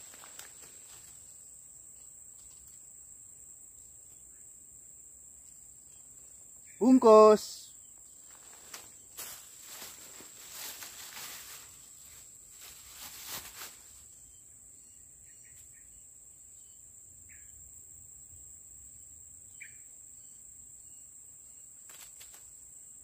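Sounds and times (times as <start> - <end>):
rustling near microphone: 0.0 - 1.3, 8.2 - 14.1
insects droning: 0.0 - 23.0.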